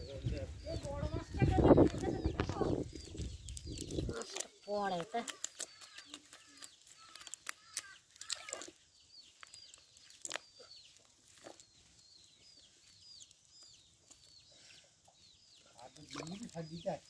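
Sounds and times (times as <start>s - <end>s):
short high chirping calls: 0.0s - 11.9s.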